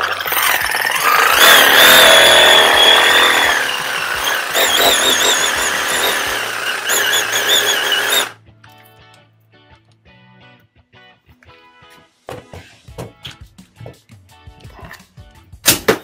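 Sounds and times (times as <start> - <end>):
reciprocating saw motor whine: 0.0 - 8.4.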